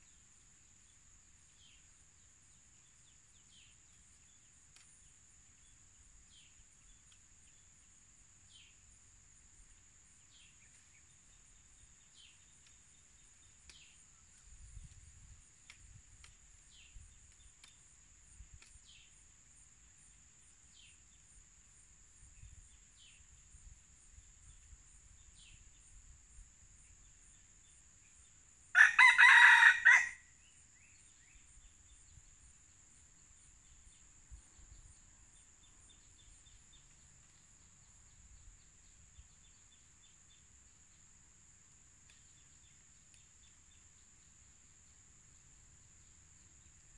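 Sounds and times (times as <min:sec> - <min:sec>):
rooster crowing: 0:28.7 - 0:30.3.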